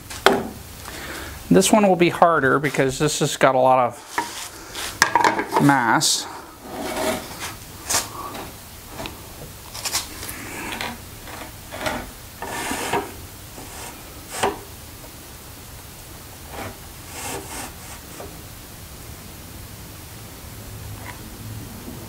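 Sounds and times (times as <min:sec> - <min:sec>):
wood scraping and knocking: 0:04.0 - 0:05.9, 0:06.6 - 0:14.7.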